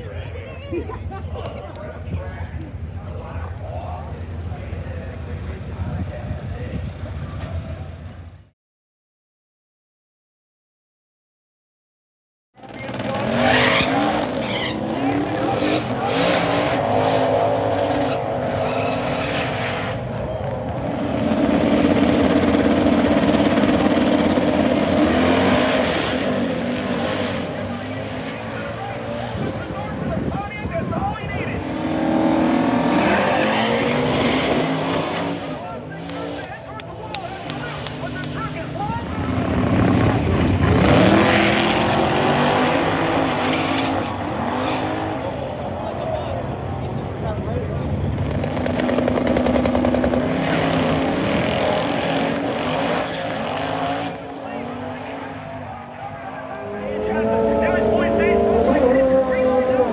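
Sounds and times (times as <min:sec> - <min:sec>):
racing car engines revving: 0:12.6 - 0:59.9.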